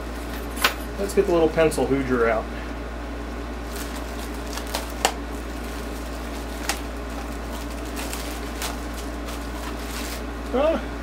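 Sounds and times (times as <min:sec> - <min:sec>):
steady low hum: 0:00.0 - 0:11.0
plastic bag crinkling: 0:03.6 - 0:10.5.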